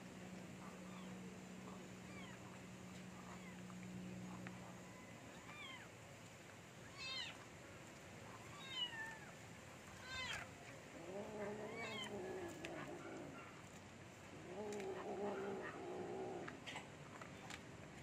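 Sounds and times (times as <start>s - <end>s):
cat growling low: 10.2s - 13.4s, 14.3s - 16.8s.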